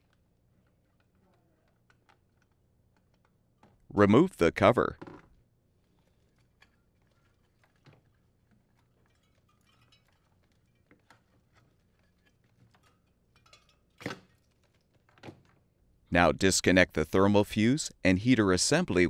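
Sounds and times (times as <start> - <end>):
hand handling wires clicking: 0.0 - 3.8.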